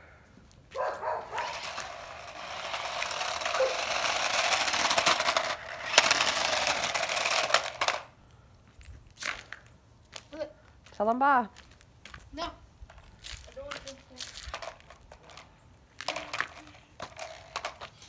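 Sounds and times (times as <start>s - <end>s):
plastic wheels rattling on concrete: 1.2s - 8.1s, 12.9s - 18.0s
toy car motor whirring: 1.3s - 8.1s, 16.1s - 18.0s.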